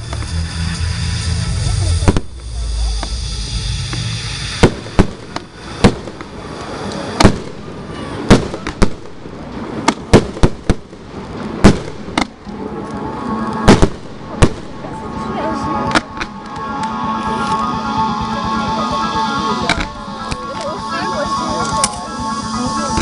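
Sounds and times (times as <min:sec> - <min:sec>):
fireworks shells launching and bursting: 0:00.0 - 0:15.0.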